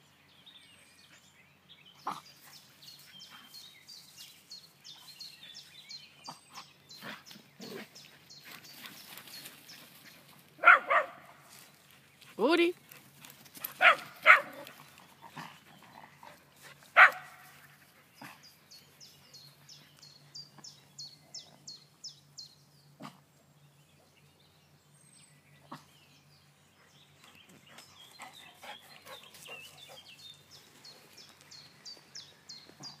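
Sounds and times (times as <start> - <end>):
dog barking: 10.6 - 11.4, 13.8 - 14.7, 17.0 - 17.4.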